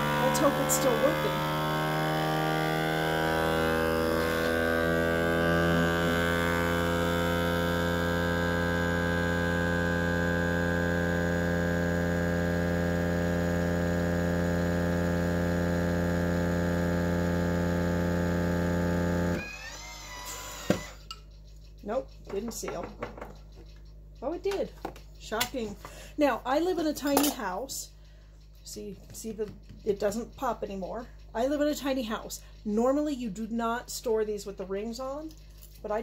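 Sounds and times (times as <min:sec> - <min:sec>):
vacuum sealer pump humming: 0:00.0 - 0:21.1.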